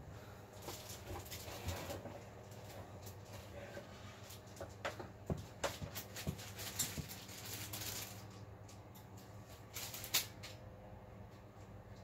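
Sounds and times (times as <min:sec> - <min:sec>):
low equipment hum: 0:00.0 - 0:12.0
rustling: 0:05.4 - 0:08.4.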